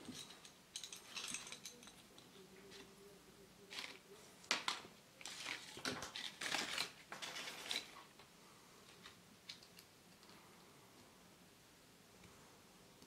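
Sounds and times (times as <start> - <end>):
paper crackling and rustling: 3.7 - 8.2.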